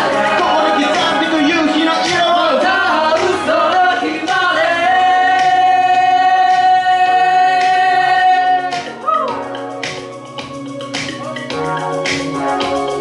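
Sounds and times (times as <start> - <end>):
vocal trio singing in harmony: 0.0 - 9.6
musical accompaniment with steady beat: 0.0 - 13.0.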